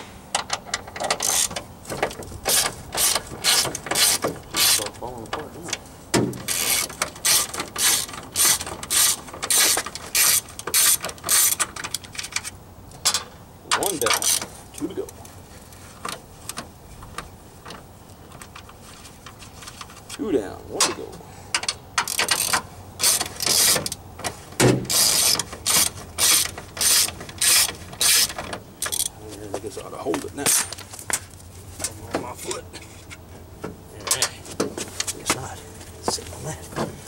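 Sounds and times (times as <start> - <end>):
hand ratchet clicking: 0.4 - 1.6, 2.5 - 4.9, 6.4 - 12.5, 13.1 - 14.5, 21.5 - 24.0, 24.9 - 29.1.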